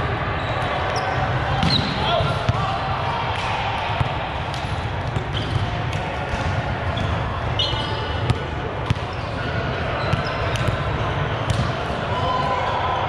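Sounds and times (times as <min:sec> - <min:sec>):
sneaker squeaks: 0:00.4 - 0:02.1, 0:05.3 - 0:05.6, 0:06.9 - 0:10.8
volleyball bouncing on court: 0:08.3 - 0:09.2, 0:10.0 - 0:10.8, 0:11.4 - 0:11.8.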